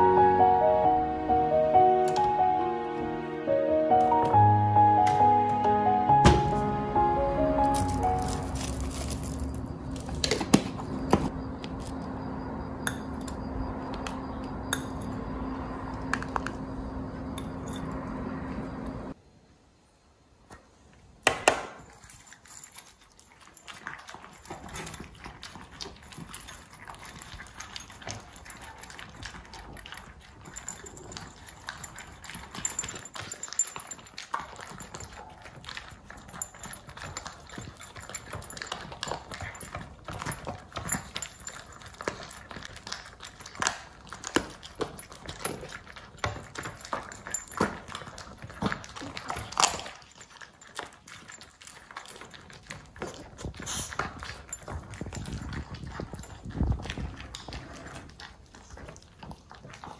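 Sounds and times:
dogs crunching kibble: 0:06.7 - 0:12.5, 0:21.6 - 0:59.9.

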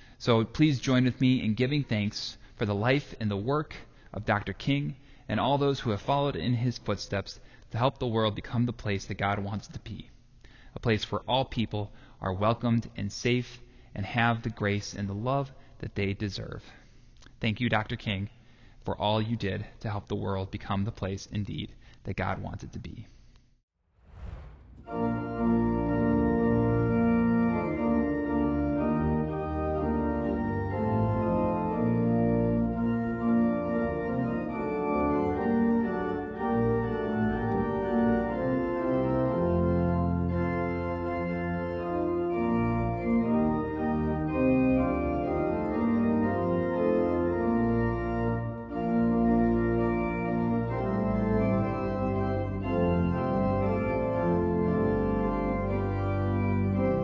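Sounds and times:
church organ chords: 0:24.8 - 0:57.0.

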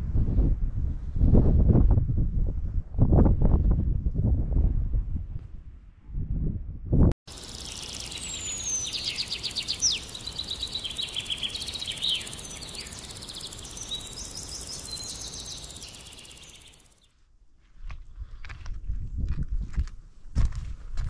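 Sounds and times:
faint steady hiss: 0:07.3 - 0:17.1
songbirds singing: 0:07.3 - 0:17.2.

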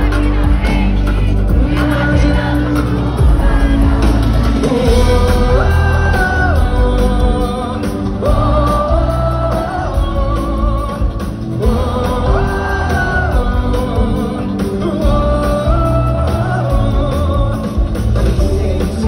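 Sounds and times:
live pop band with heavy bass: 0:00.0 - 0:19.0
person singing long gliding notes: 0:00.0 - 0:19.0.

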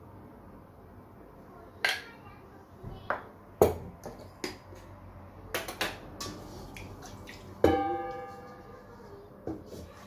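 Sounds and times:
metal bowl knocking and ringing: 0:07.6 - 0:08.7.

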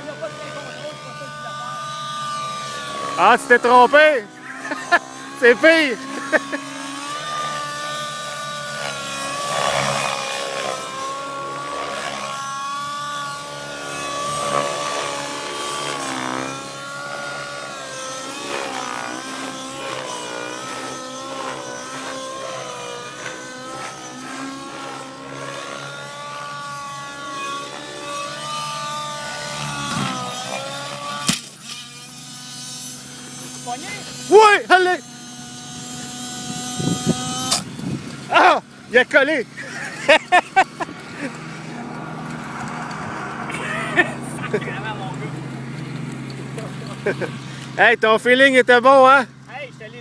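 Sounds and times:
model helicopter rotor whine: 0:00.0 - 0:50.0.

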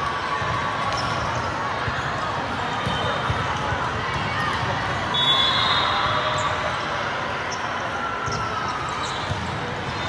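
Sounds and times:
balls bouncing and being hit: 0:00.0 - 0:05.1, 0:08.2 - 0:10.0
echoing sports hall din: 0:00.0 - 0:10.0.

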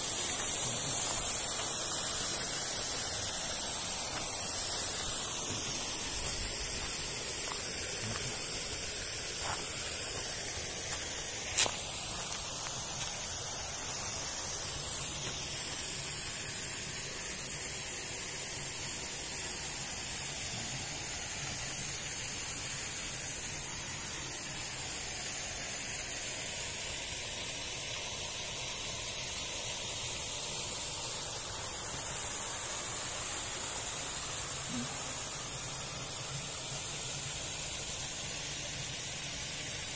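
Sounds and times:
waterfall rushing: 0:00.0 - 0:17.2.

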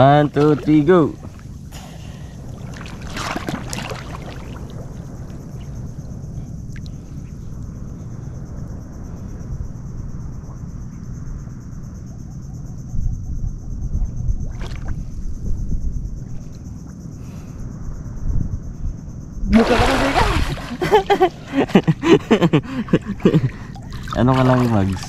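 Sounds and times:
rippling water: 0:00.0 - 0:05.5, 0:19.5 - 0:22.0, 0:22.7 - 0:25.0
wind on microphone: 0:12.8 - 0:16.5, 0:17.9 - 0:21.0.

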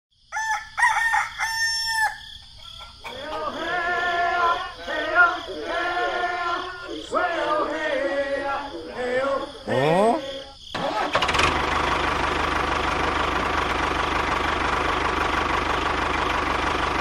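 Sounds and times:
rooster crowing: 0:00.3 - 0:10.6.

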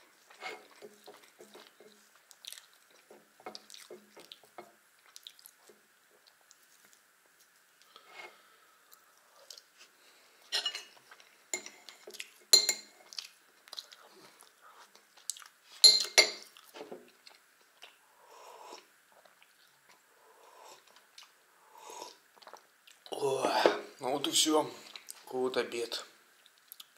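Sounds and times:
chewing: 0:00.2 - 0:07.0, 0:08.9 - 0:09.8, 0:10.9 - 0:12.4, 0:13.0 - 0:15.6, 0:16.4 - 0:18.0, 0:18.7 - 0:21.4, 0:22.0 - 0:23.1, 0:26.4 - 0:26.9
spoon clinking on ceramic plate: 0:10.5 - 0:10.9, 0:11.6 - 0:12.9, 0:15.8 - 0:16.4.

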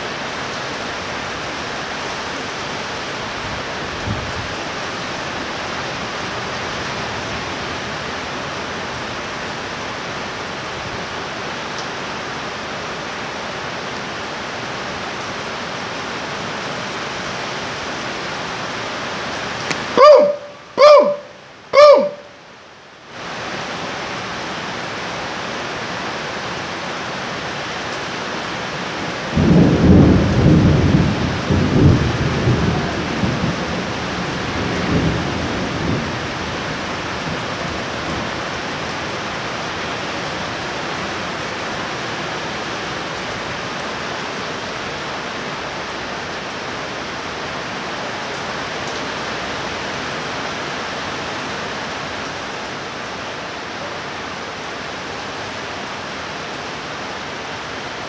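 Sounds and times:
heavy rain falling: 0:00.0 - 0:58.0
thunder clap and rumble: 0:29.4 - 0:36.3.

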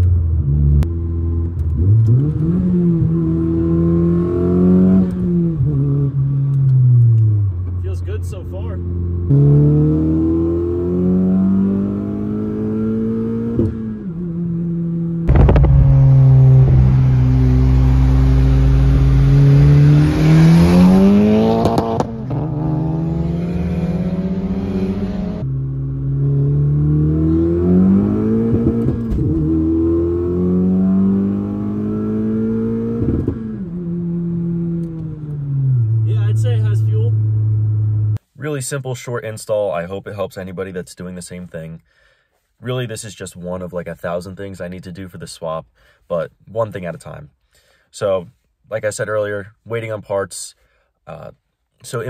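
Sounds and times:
car engine accelerating: 0:08.8 - 0:38.2
wind and road rush: 0:08.8 - 0:38.2.

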